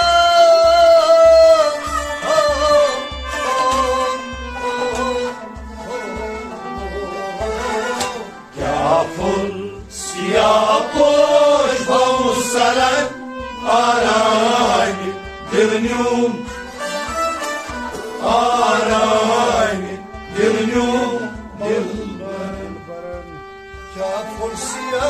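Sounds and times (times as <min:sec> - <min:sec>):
men singing devotional song: 0:00.0 - 0:03.1, 0:08.5 - 0:16.7, 0:18.1 - 0:22.9
plucked lute: 0:00.0 - 0:24.8
bowed string instrument: 0:00.0 - 0:25.0
harmonium chords: 0:00.0 - 0:25.0.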